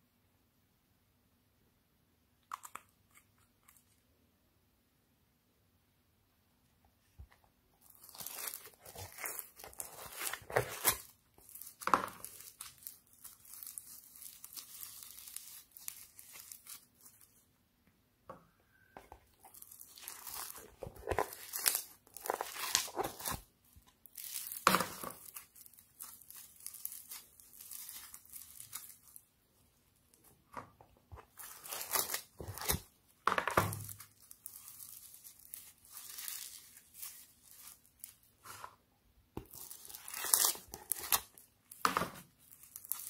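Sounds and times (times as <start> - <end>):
slime crackling and squishing: 7.8 - 17.4, 19.3 - 29.3, 31.2 - 38.5, 39.4 - 43.0.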